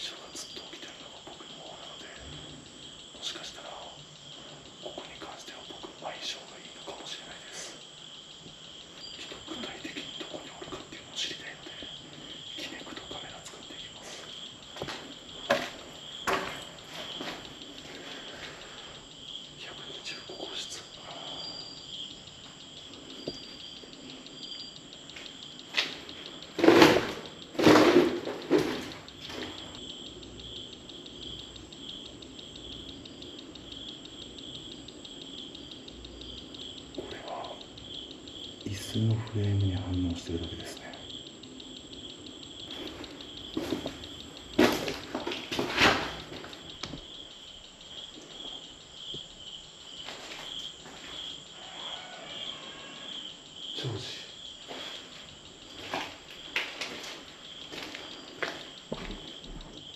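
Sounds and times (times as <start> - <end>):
crickets chirping: 0.0 - 59.9
footsteps crunching on debris: 14.8 - 18.0, 43.6 - 46.5.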